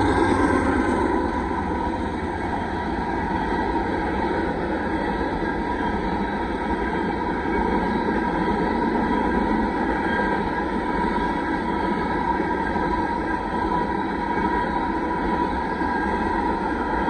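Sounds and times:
train wheels rumbling on rails: 0.0 - 17.0.

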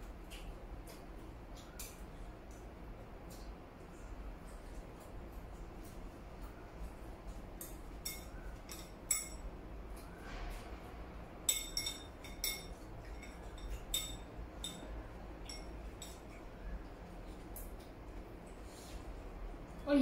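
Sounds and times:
chopsticks clinking on bowls: 7.6 - 9.5, 11.4 - 16.5.

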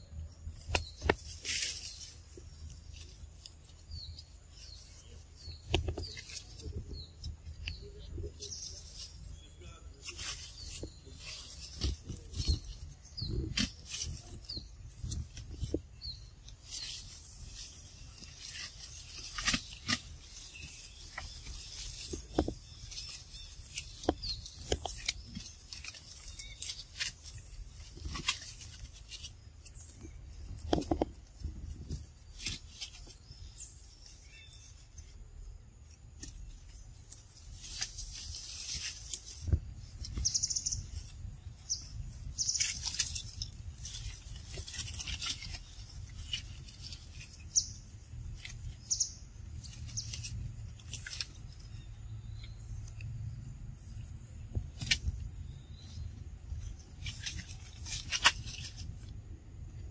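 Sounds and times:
leaves and branches rustling: 0.0 - 59.9
low steady rumble: 43.2 - 59.9.

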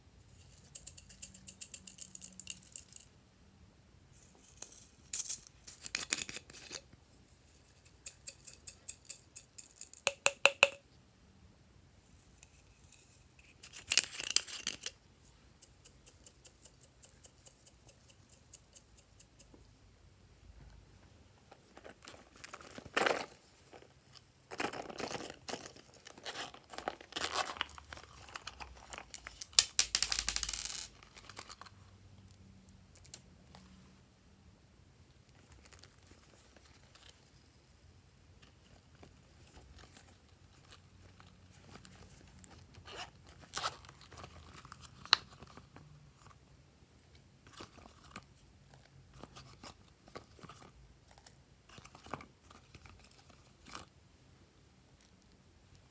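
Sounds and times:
crinkling and crackling: 21.4 - 31.8, 38.4 - 46.4, 47.1 - 54.0.

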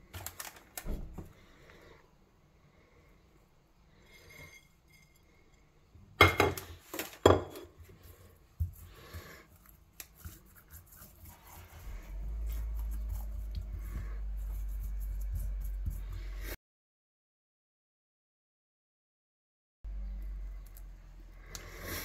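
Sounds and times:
hands working herbs into meat: 7.8 - 16.5
steady low hum: 8.0 - 16.6.

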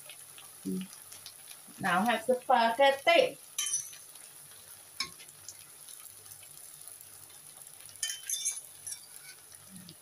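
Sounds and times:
spaghetti clinking into wok: 3.6 - 4.0, 8.0 - 9.1.

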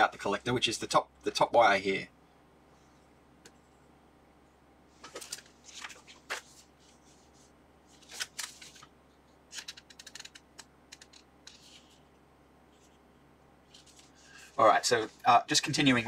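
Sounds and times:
paper rustling: 5.0 - 8.9, 9.5 - 10.4, 11.0 - 12.1, 13.7 - 15.2.

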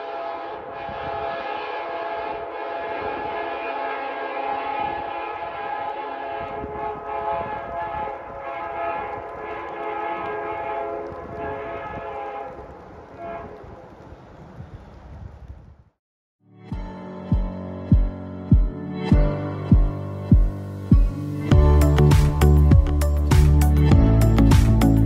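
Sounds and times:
locomotive air horn: 0.0 - 13.7
train rumbling: 0.0 - 15.9, 18.0 - 25.0.

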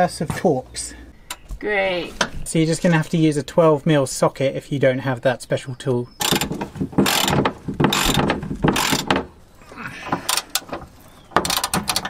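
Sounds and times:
hand ratchet clicking: 6.2 - 9.3, 10.3 - 10.7, 11.4 - 12.0.

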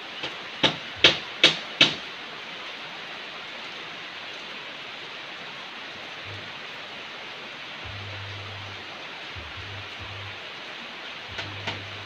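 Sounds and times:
heavy rain on trees: 0.0 - 12.0.

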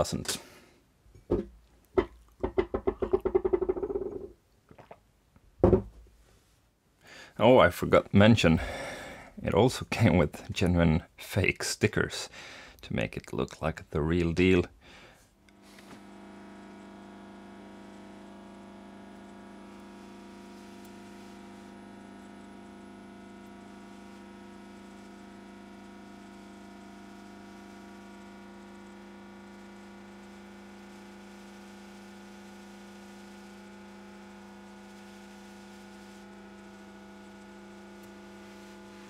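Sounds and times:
hot-air station hum: 14.8 - 39.0.

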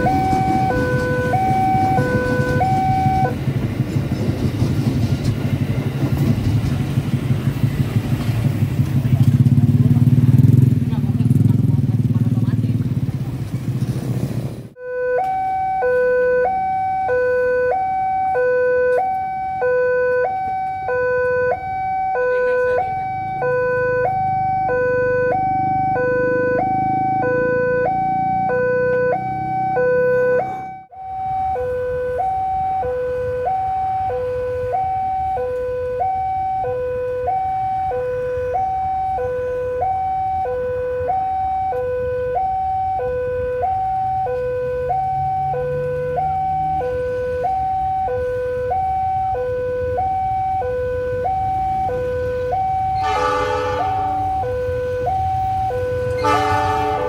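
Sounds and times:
level crossing two-tone alarm: 0.0 - 3.4, 14.8 - 57.0.

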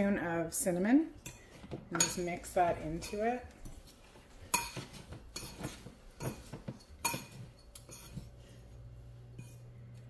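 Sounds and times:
spoon clinking against bowl: 5.4 - 8.2.

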